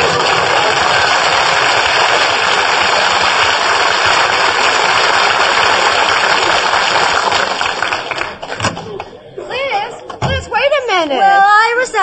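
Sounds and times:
audience laughter: 0:00.0 - 0:02.3
audience applause: 0:00.0 - 0:09.0.

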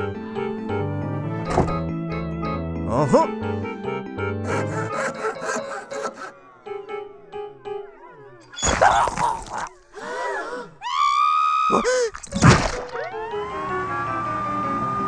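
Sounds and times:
loud thump: 0:01.5 - 0:01.8
ambulance siren wailing: 0:04.5 - 0:08.6, 0:12.9 - 0:15.0
cartoon wet squelch: 0:08.6 - 0:09.8, 0:11.7 - 0:13.0.

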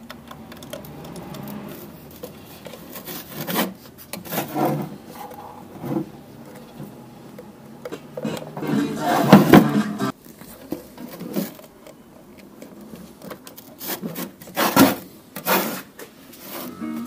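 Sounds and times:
wires rubbing and scraping: 0:00.6 - 0:07.1.

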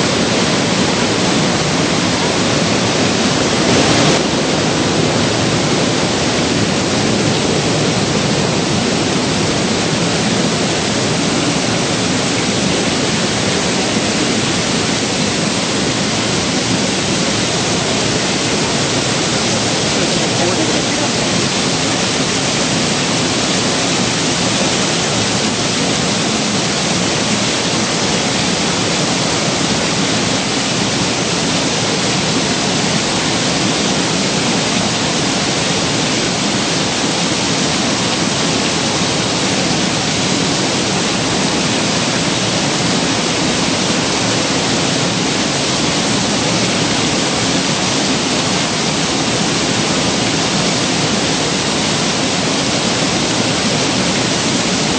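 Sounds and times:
waterfall rushing: 0:00.0 - 0:54.9.

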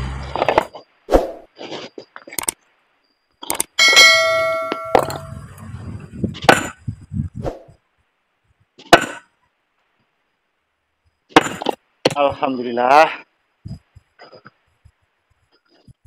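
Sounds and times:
ringing clang of strike on stone: 0:03.8 - 0:05.4.

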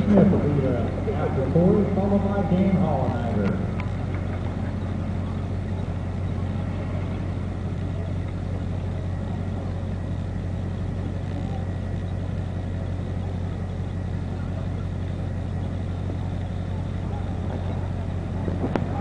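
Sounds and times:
engines idling: 0:00.0 - 0:19.0.

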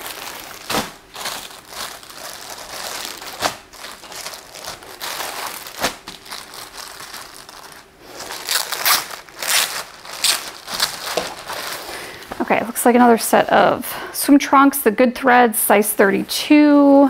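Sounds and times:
packaging crinkling and rustling: 0:00.0 - 0:12.5.

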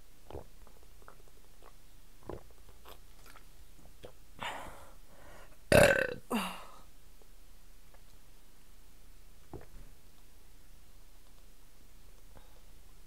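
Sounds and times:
woman swallowing water: 0:00.2 - 0:03.4
woman burping loudly: 0:05.7 - 0:06.7.

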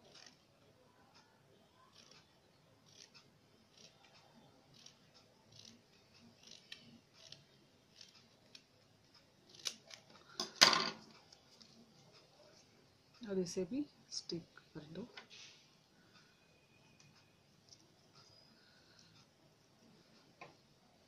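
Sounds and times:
scissors snipping paper: 0:09.5 - 0:10.1.

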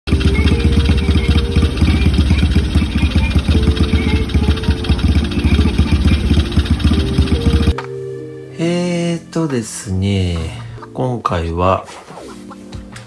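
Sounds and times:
small engine idling: 0:00.1 - 0:07.8.

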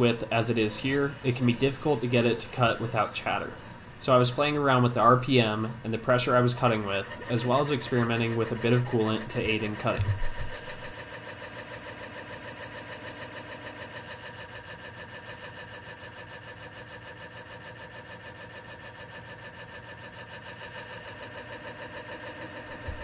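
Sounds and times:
cutting machine humming: 0:00.0 - 0:04.0, 0:06.6 - 0:10.9, 0:22.5 - 0:23.0.

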